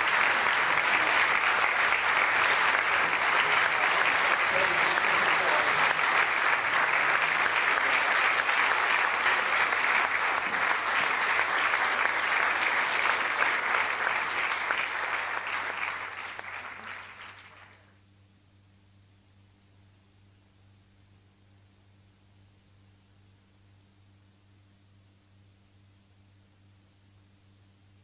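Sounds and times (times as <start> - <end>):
audience applauding: 0.0 - 17.8.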